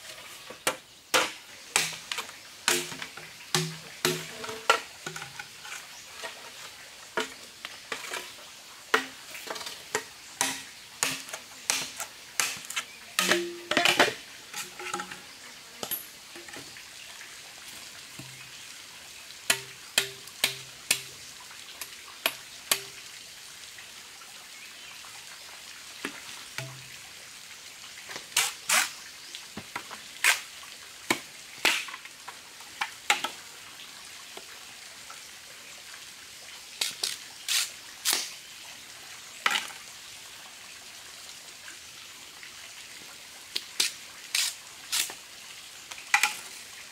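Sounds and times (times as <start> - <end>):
bamboo poles knocking together: 0.5 - 6.4, 8.9 - 16.7, 18.2 - 18.4, 19.5 - 21.2, 32.8 - 33.4, 46.1 - 46.5
machete splitting bamboo: 0.7 - 4.4, 10.4 - 14.1, 28.4 - 28.9, 36.8 - 38.3, 43.8 - 45.1.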